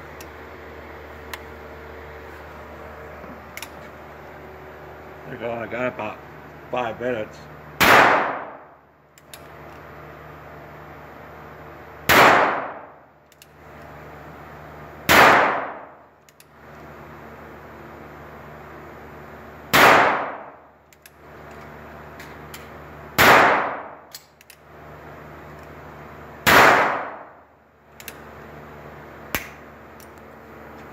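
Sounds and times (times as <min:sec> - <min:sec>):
handgun shots echoing: 0:07.8 - 0:08.7, 0:12.1 - 0:13.0, 0:15.1 - 0:15.9, 0:19.7 - 0:20.6, 0:23.2 - 0:24.4, 0:26.4 - 0:27.4, 0:29.3 - 0:29.6.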